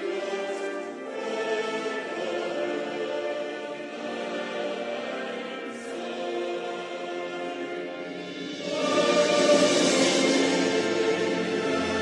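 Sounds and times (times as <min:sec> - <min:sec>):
choir singing held chords: 0:00.0 - 0:12.0.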